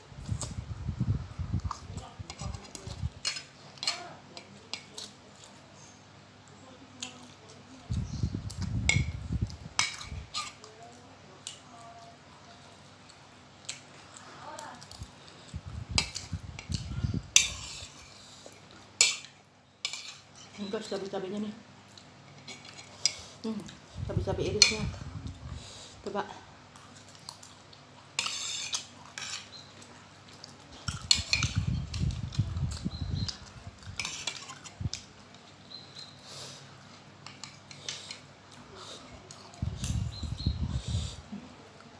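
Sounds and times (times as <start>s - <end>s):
cutlery scraping ceramic plates: 19.0s - 20.7s, 28.2s - 29.6s, 34.0s - 34.8s.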